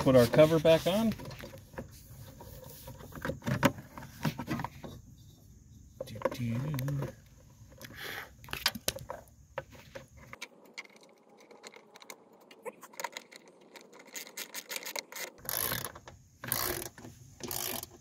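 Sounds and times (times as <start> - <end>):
socket wrench ratchet clicks: 15.4 - 18.0.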